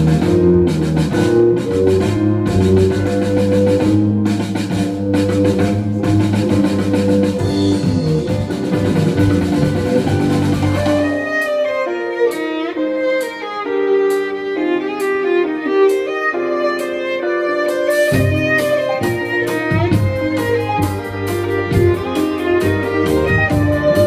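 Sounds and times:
double bass: 0:00.0 - 0:11.2, 0:18.1 - 0:24.0
violin: 0:00.0 - 0:24.0.

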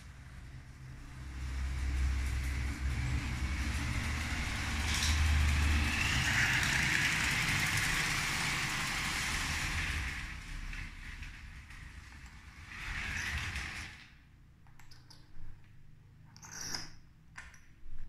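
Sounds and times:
toy train motor and wheel rumble: 0:00.1 - 0:14.2.

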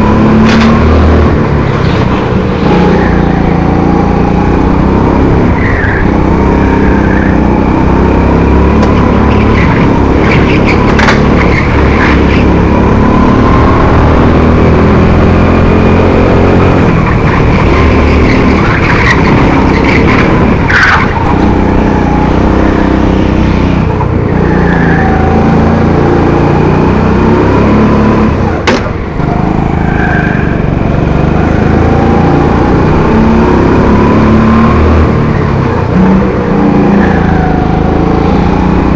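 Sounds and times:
go-kart engine revving: 0:00.0 - 0:38.9
tyre squeal: 0:05.2 - 0:07.7, 0:16.5 - 0:23.6.

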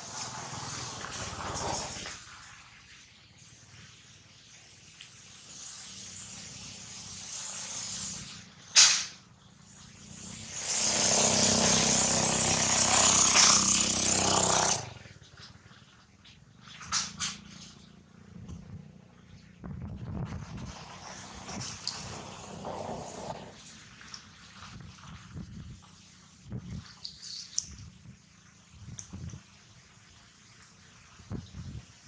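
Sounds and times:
single sharp loud sound: 0:08.8 - 0:09.2
vehicle engine running loudly: 0:09.8 - 0:15.6.

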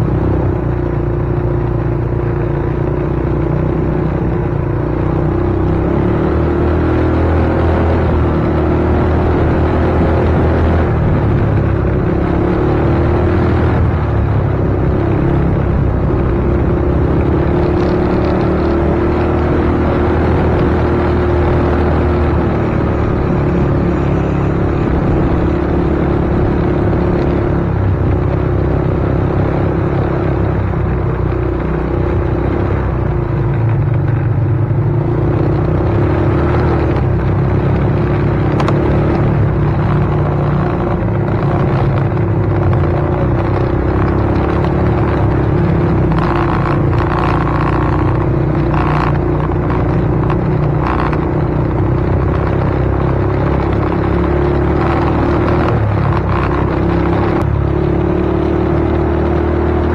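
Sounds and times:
vehicle rumble: 0:00.0 - 0:59.9.

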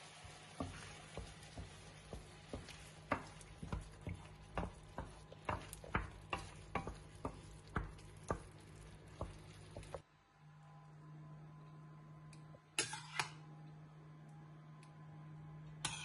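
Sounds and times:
wooden spatula scraping a pan: 0:00.4 - 0:10.0, 0:12.8 - 0:13.3.

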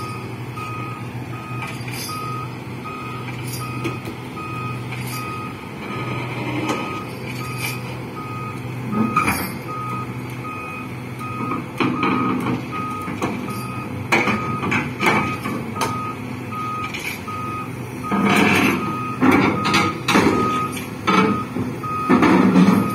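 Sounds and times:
diesel engine running: 0:00.0 - 0:22.9
reversing alarm beeping: 0:00.0 - 0:22.9
metallic clanks of steel tracks: 0:01.4 - 0:02.6, 0:03.2 - 0:10.4, 0:11.2 - 0:16.0, 0:16.8 - 0:22.9.

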